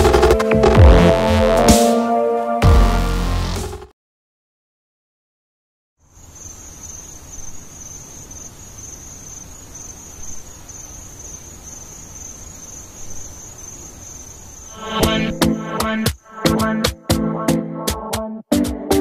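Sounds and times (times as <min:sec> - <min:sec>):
crickets trilling: 0:06.0 - 0:16.3
background hiss and rumble: 0:06.1 - 0:14.8.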